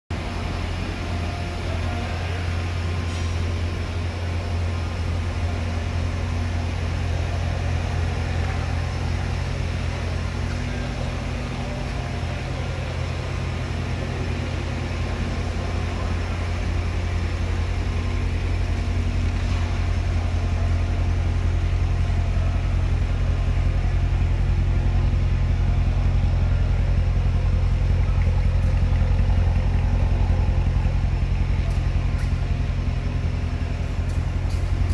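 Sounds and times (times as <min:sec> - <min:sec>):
car engine idling: 0:00.1 - 0:34.9.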